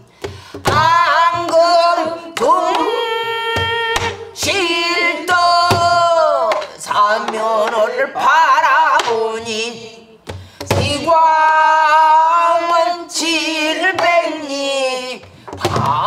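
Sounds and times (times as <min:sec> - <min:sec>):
woman singing with vibrato: 0:00.6 - 0:16.0.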